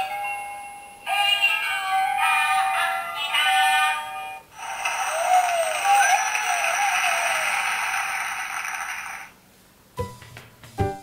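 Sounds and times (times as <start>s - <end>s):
toy playing electronic song: 4.6s - 9.3s.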